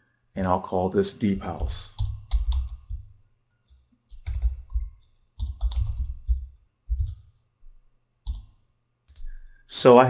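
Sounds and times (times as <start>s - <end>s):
computer keyboard typing: 1.3s - 7.3s, 8.2s - 9.4s.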